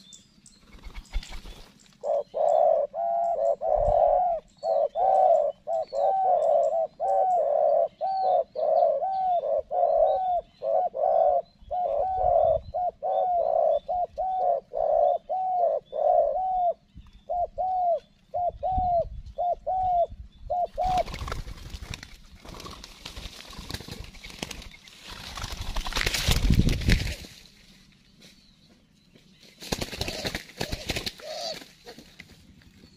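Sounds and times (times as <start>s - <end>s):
doves cooing: 0.7s - 22.9s, 29.7s - 32.1s.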